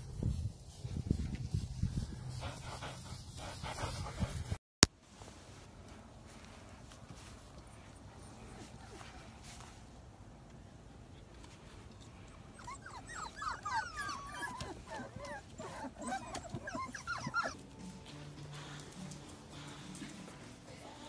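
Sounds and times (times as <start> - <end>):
puppies whining and yelping: 12.1 - 18.0.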